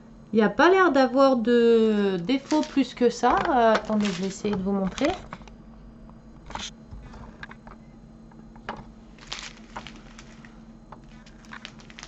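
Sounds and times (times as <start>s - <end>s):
faint steady hum: 0.0s - 12.0s
plastic sachets crinkling: 2.2s - 5.5s, 9.2s - 12.0s.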